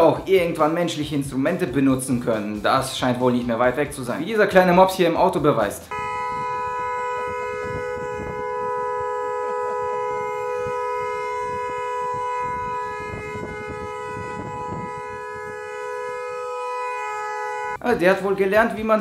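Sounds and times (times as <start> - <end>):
car horn blaring: 5.8 - 17.8.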